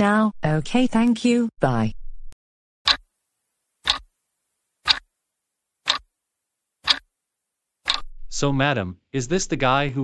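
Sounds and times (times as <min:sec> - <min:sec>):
clock ticking: 0:02.9 - 0:03.1, 0:03.8 - 0:04.1, 0:04.8 - 0:05.1, 0:05.8 - 0:06.1, 0:06.8 - 0:07.1, 0:07.8 - 0:08.1.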